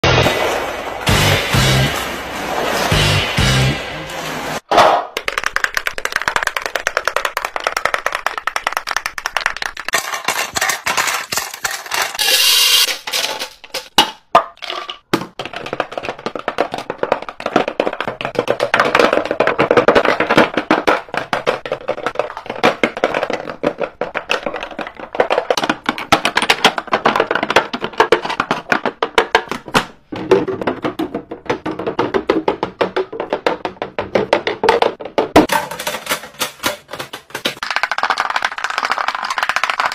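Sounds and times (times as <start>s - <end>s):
plastic cases clacking: 13.9s - 37.8s.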